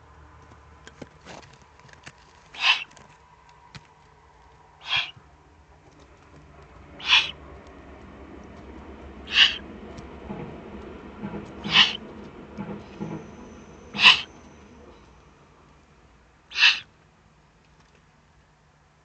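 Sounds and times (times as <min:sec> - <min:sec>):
owl chicks hissing begging call: 0:02.6 - 0:02.9, 0:04.8 - 0:05.2, 0:07.0 - 0:07.4, 0:09.3 - 0:09.6, 0:11.6 - 0:12.0, 0:14.0 - 0:14.4, 0:16.5 - 0:16.9.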